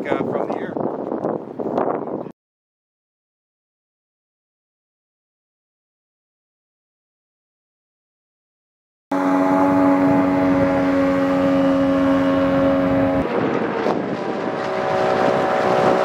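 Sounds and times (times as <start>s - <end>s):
outboard engine running: 9.1s - 16.0s.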